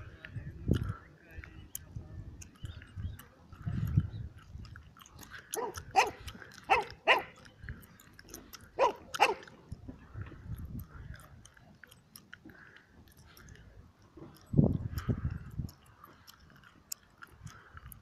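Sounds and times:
faint crackling and rumble: 0.0s - 18.0s
dog barking: 5.5s - 7.4s, 8.8s - 9.5s.

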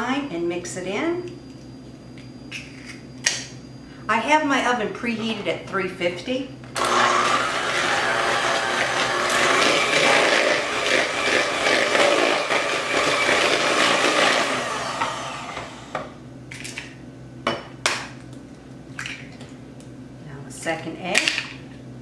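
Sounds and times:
electric hand mixer beating: 6.8s - 16.1s.

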